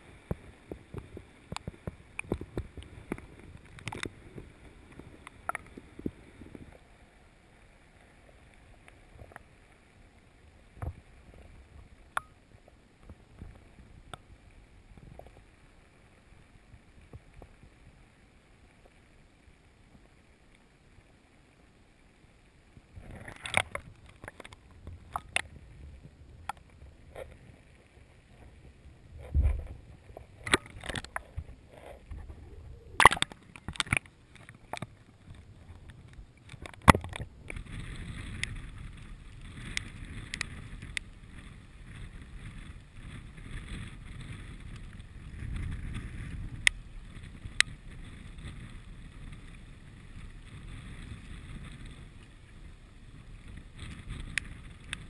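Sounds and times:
steady wind: 0:00.0 - 0:55.0
choppy water splashing: 0:22.8 - 0:55.0.

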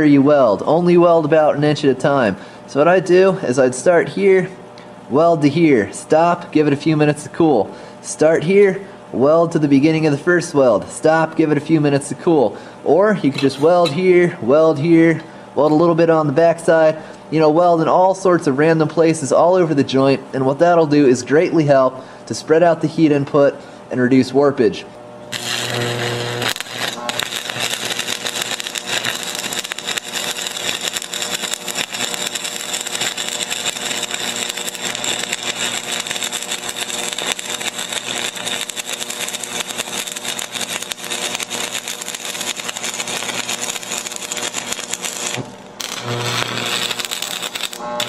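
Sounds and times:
low hum: 0:25.2 - 0:48.0
arc welding crackle and sizzle: 0:25.3 - 0:48.0.

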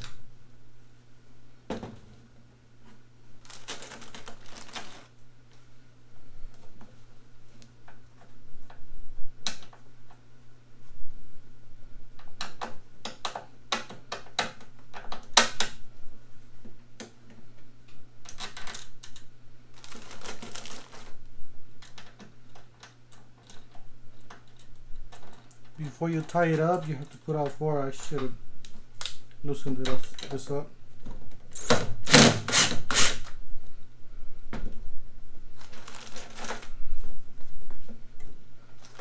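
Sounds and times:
steady low hum: 0:00.0 - 0:39.0
bolts and nuts clinking on metal: 0:23.1 - 0:28.3.

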